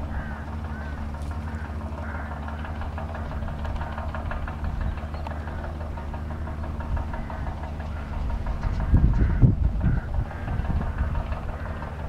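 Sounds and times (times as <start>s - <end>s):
tractor diesel engine under load: 0.0s - 12.0s
faint rapid clicking: 0.8s - 9.3s.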